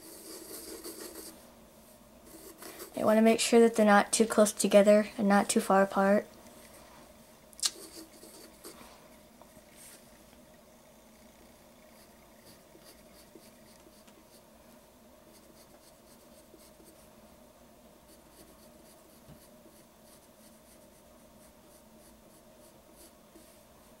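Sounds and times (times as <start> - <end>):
pencil scratching on paper: 0.0 - 1.4, 2.3 - 3.8, 7.8 - 8.9, 11.8 - 14.4, 15.3 - 17.1, 18.1 - 24.0.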